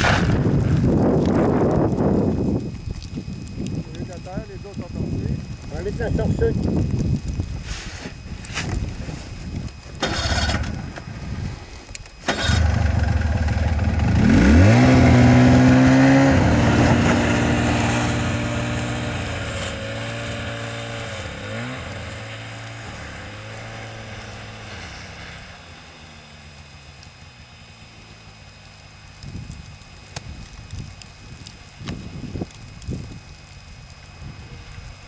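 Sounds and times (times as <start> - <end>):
wind gusts: 0.0 - 25.6
snowmobile engine revving: 12.2 - 25.9.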